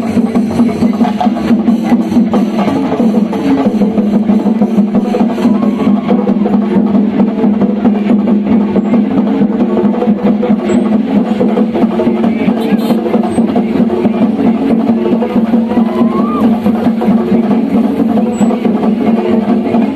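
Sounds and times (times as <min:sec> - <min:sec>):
percussion ensemble drumming: 0:00.0 - 0:19.9.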